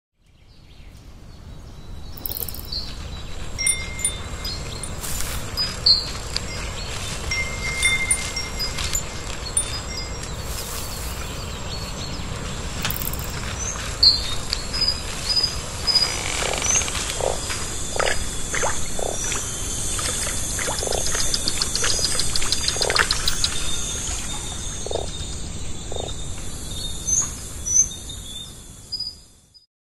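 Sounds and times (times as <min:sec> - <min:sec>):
bird chirps: 0:01.8 - 0:29.2
steady hiss: 0:02.2 - 0:27.8
high insect drone: 0:03.4 - 0:29.0
rapid ticking trill: 0:07.2 - 0:10.3, 0:15.8 - 0:25.2.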